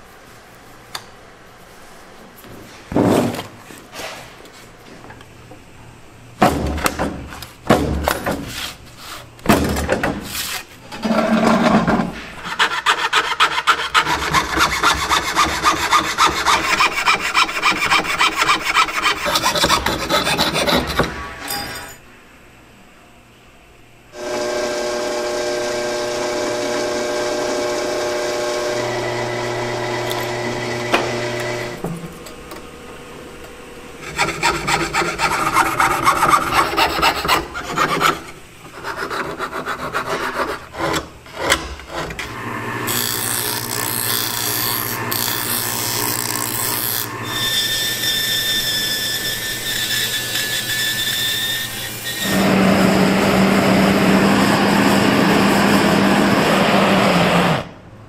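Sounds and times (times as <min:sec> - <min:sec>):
piercing saw cutting strokes: 0:12.4 - 0:21.6, 0:34.0 - 0:42.1, 0:42.8 - 0:56.4
machine whine: 0:24.1 - 0:37.4, 0:42.2 - 0:57.8
drill whining through metal: 0:24.2 - 0:31.8, 0:42.2 - 0:57.7.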